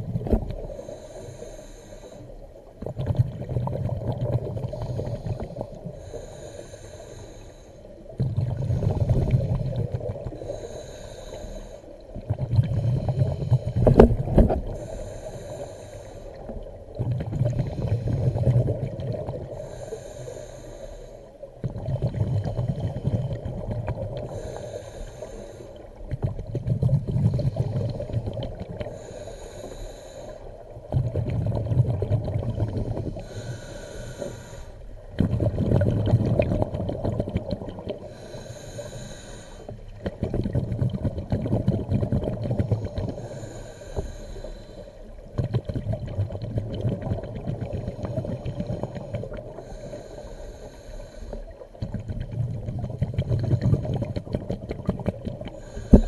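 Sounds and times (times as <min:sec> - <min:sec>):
exhaled bubbles rumbling: 0:00.0 - 0:00.8, 0:02.6 - 0:06.1, 0:08.0 - 0:10.6, 0:12.0 - 0:15.5, 0:16.2 - 0:19.8, 0:21.4 - 0:24.6, 0:25.8 - 0:29.1, 0:30.5 - 0:43.5, 0:45.1 - 0:56.0
regulator inhale hiss: 0:00.3 - 0:02.8, 0:04.6 - 0:09.6, 0:10.2 - 0:12.1, 0:12.8 - 0:16.8, 0:17.5 - 0:18.7, 0:19.4 - 0:21.6, 0:24.2 - 0:26.1, 0:27.5 - 0:30.8, 0:32.9 - 0:35.1, 0:38.0 - 0:40.0, 0:42.6 - 0:45.3, 0:47.7 - 0:51.8, 0:55.5 - 0:56.0.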